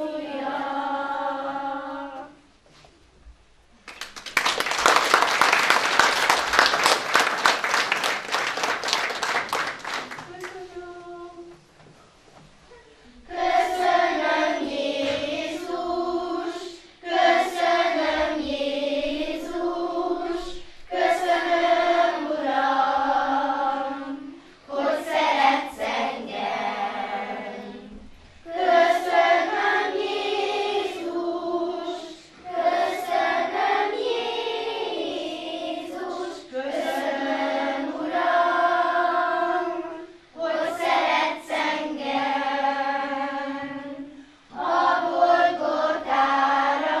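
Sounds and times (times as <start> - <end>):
children's choir singing: 0.0 - 2.5, 4.4 - 11.7, 12.7 - 47.0.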